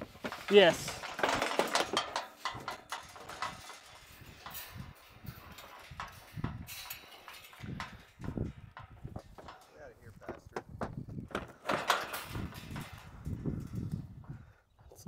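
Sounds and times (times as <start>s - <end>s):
turkey scrambling on wooden boards: 0.0s - 13.6s.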